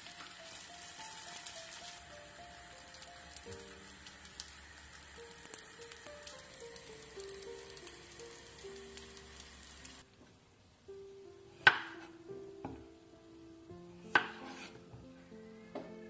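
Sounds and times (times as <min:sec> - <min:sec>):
bread sizzling in oil: 0:00.0 - 0:10.1
soft background music: 0:00.0 - 0:10.2, 0:10.8 - 0:16.0
knife slicing cucumber: 0:14.1 - 0:14.8.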